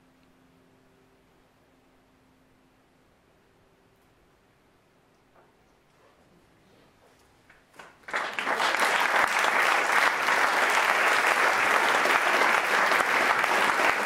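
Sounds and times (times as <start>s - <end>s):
audience applauding: 7.8s - 14.0s.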